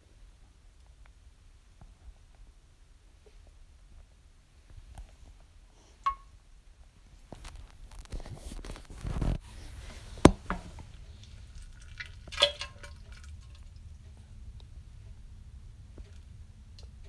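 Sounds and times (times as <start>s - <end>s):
wet clicks and drips: 10.4s - 14.7s.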